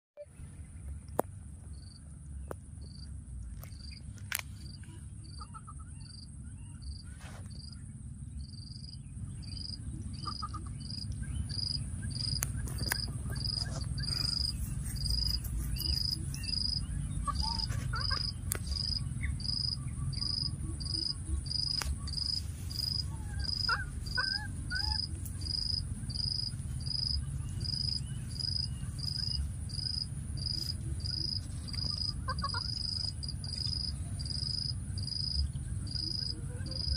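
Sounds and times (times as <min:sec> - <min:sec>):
insect chirping: 0:01.6 - 0:02.2, 0:02.8 - 0:36.9
high insect drone: 0:32.6 - 0:36.9.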